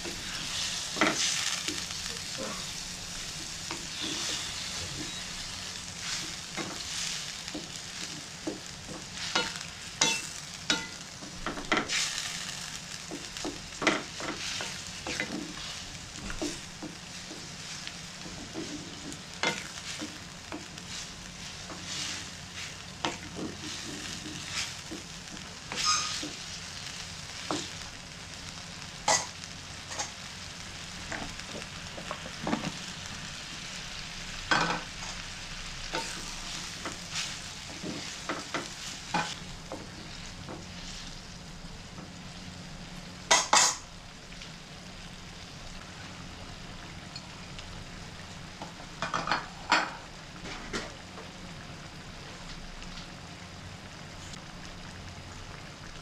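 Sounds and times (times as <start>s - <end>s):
spatula scraping a pan: 2.4s - 10.9s, 25.7s - 26.4s
sauce simmering: 50.9s - 56.0s.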